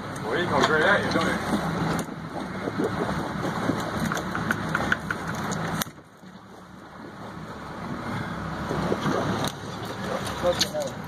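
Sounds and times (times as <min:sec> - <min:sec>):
boat engine idling: 0:00.0 - 0:11.0
wind: 0:00.0 - 0:11.0.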